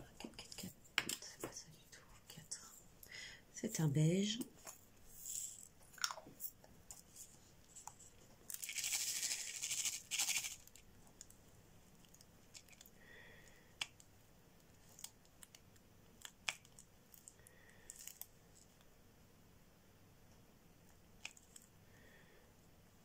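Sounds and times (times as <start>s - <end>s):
beads rattling in plastic tray: 8.5s - 10.8s.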